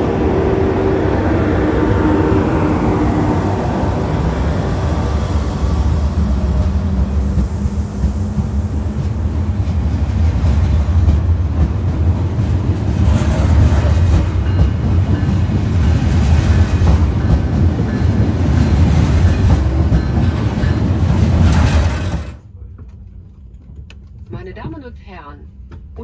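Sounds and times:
train rumbling on rails: 0:00.0 - 0:26.0
wheels knocking on track: 0:06.2 - 0:22.4.

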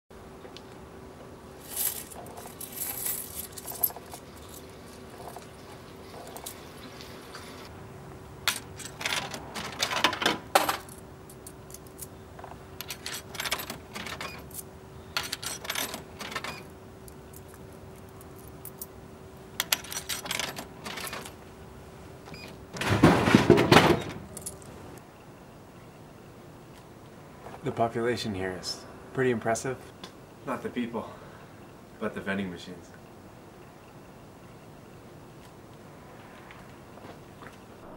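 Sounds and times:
faint steady hum: 0:00.1 - 0:37.9
coins rattling into coin slot: 0:01.6 - 0:05.4, 0:08.5 - 0:12.1, 0:12.8 - 0:16.7, 0:19.6 - 0:21.4.

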